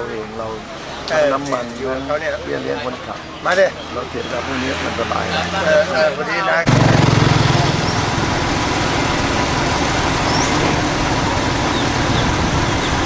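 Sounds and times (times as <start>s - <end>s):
engine running with fast pulsing: 6.7s - 13.0s.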